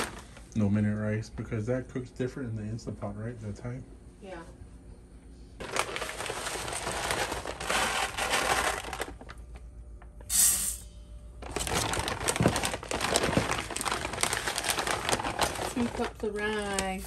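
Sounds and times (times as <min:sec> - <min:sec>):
plastic bag crinkling: 0:00.0 - 0:00.5, 0:05.6 - 0:09.6, 0:11.4 - 0:17.0.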